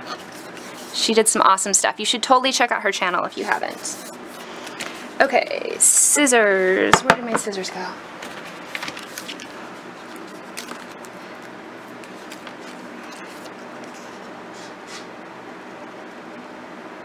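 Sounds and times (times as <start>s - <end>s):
paper rustling: 8.2s - 14.7s.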